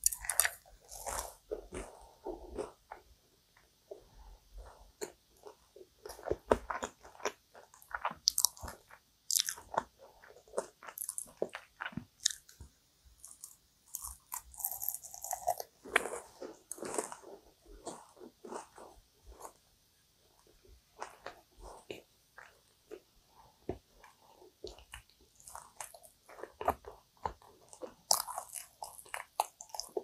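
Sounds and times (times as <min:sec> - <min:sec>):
pastry crunching: 0:00.0 - 0:03.0, 0:05.0 - 0:12.6, 0:13.2 - 0:19.6, 0:23.7 - 0:30.0.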